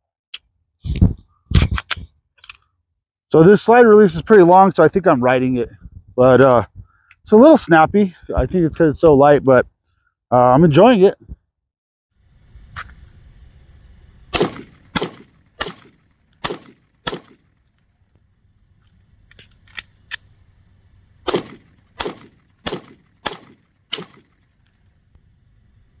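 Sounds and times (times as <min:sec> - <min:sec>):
pistol shots: 0:14.3 - 0:17.5, 0:21.2 - 0:24.4
magazine change clicks: 0:14.4 - 0:17.8, 0:21.3 - 0:24.9.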